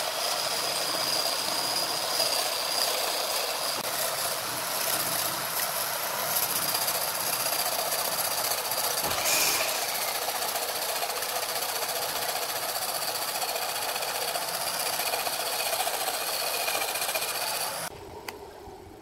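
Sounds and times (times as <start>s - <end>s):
sandpaper sanding spinning wood: 0.0s - 17.9s
lathe motor whine: 8.8s - 18.0s.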